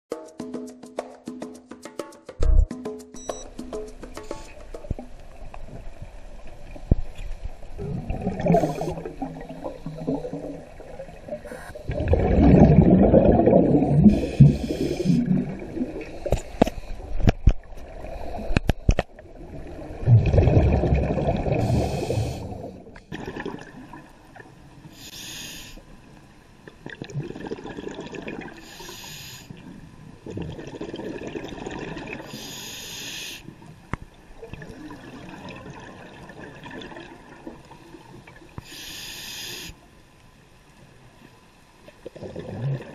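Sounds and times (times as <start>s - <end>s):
exhaled bubbles rushing: 7.7s - 16.4s, 19.2s - 24.2s, 26.8s - 28.6s, 30.2s - 32.3s, 34.4s - 37.6s, 42.0s - 42.9s
regulator inhale hiss: 8.4s - 10.6s, 14.0s - 15.4s, 16.0s - 17.2s, 21.5s - 23.0s, 24.8s - 26.0s, 28.6s - 29.6s, 32.2s - 33.6s, 38.6s - 39.9s.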